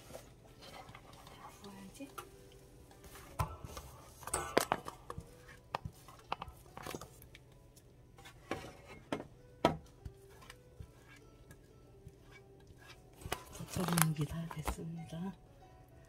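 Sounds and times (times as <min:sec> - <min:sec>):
spatula scraping metal pot: 0:10.3 - 0:14.0.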